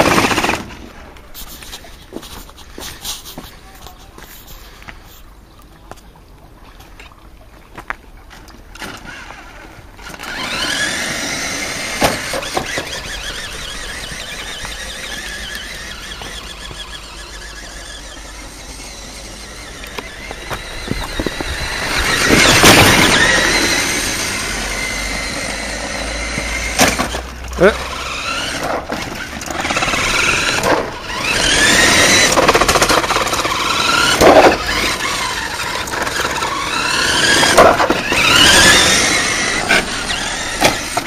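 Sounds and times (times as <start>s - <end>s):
toy car electric motor whining: 8.8s - 41.0s.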